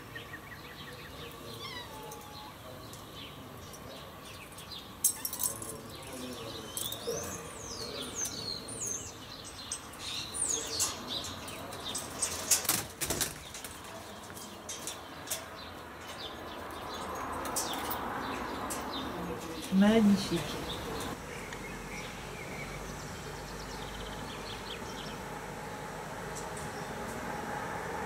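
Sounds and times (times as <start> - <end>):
small birds chirping: 0.0 - 27.3
wire bird cage rattling: 1.8 - 21.2.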